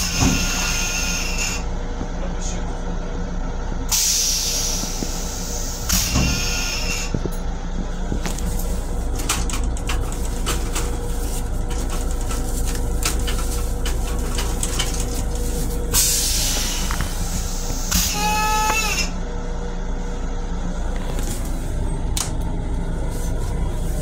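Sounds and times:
low hum: 0:00.0 - 0:24.0
clicks and rattles: 0:09.2 - 0:15.4.

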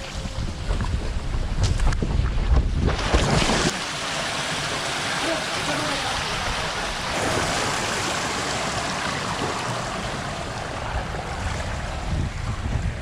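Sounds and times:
water rushing down slide: 0:02.8 - 0:13.0
low uneven rumble: 0:05.2 - 0:13.0.

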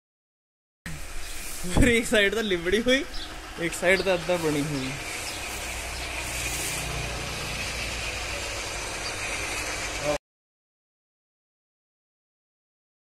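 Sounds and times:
motor humming: 0:02.5 - 0:10.2.

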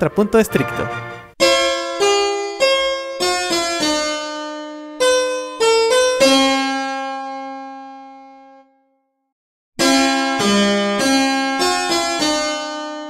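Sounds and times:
harpsichord counterpoint: 0:00.0 - 0:06.3.

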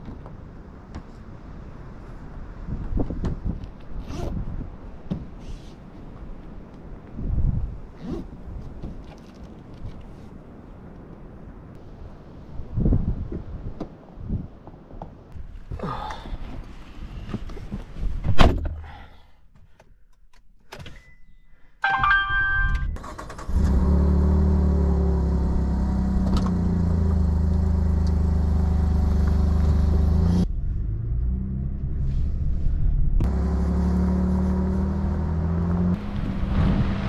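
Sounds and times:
truck engine starting and running: 0:22.0 - 0:37.0.

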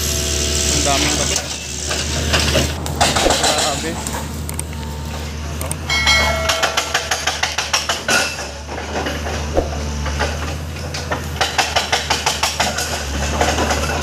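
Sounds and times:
rapid metallic clanking: 0:05.9 - 0:08.1.

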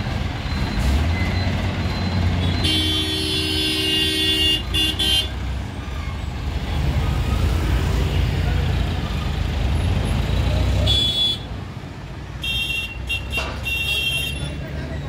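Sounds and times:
street traffic engine rumble: 0:00.0 - 0:15.0
vehicle horn blasts: 0:02.4 - 0:05.4, 0:10.9 - 0:11.5, 0:12.4 - 0:14.5.

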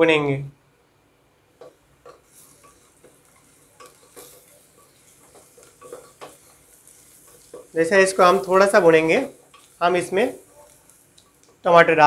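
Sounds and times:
faint sizzle of frying: 0:00.0 - 0:12.0
wooden spatula scraping pot: 0:01.6 - 0:11.6.

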